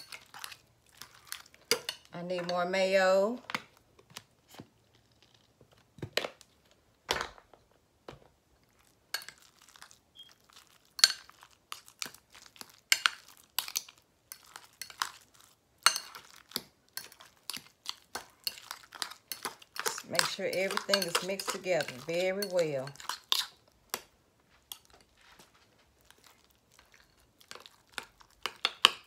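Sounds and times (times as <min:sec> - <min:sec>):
spoon scraping a glass bowl: 0:18.4 - 0:23.6.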